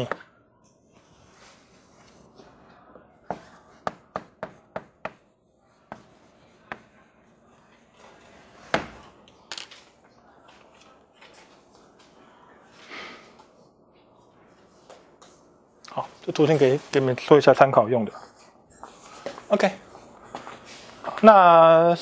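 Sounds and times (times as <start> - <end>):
chalk tapping on blackboard: 3.3 - 5.3, 5.9 - 7.1.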